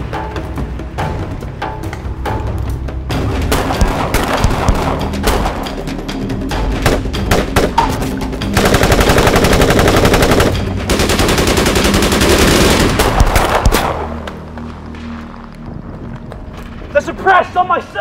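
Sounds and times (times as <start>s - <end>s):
rifle gunfire: 8.6s - 14.2s.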